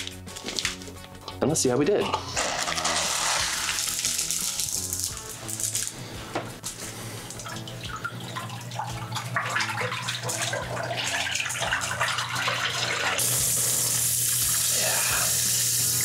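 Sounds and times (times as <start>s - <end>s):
water churning and gurgling: 6.8s - 13.6s.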